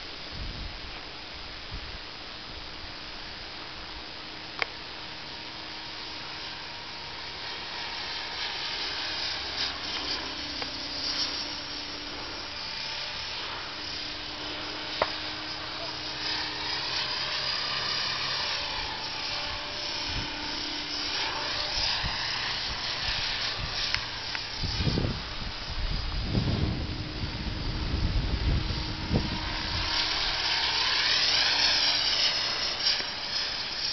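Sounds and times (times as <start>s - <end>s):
rc helicopter rotor whine: 0.0s - 33.9s
low rumbles: 22.0s - 30.5s.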